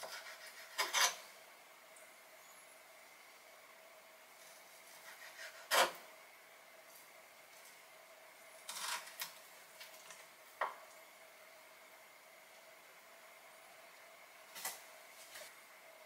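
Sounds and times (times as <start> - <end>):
knife scraping stroke: 0.0 - 1.2
faint steady hum: 0.0 - 16.0.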